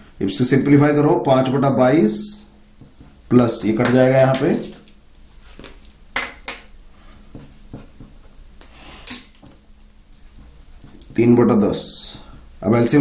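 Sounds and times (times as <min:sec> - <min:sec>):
marker pen scratching on paper: 0:02.7 - 0:05.8, 0:07.1 - 0:08.8, 0:09.4 - 0:11.3.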